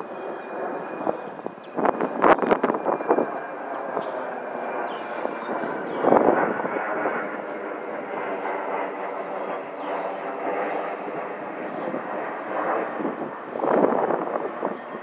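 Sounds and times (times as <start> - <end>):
jet airliner passing overhead: 0.0 - 15.0.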